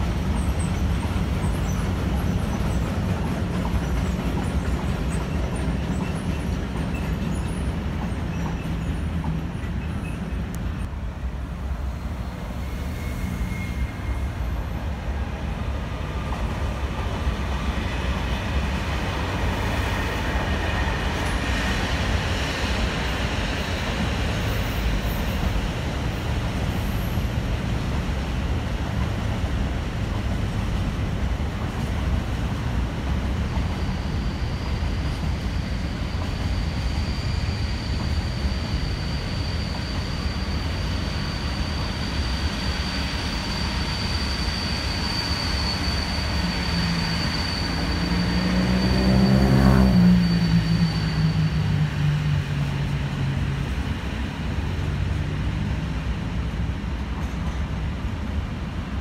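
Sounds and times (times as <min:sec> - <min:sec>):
train wheels rumbling on rails: 0:00.0 - 0:59.0
faint high ringing tones: 0:12.6 - 0:14.6.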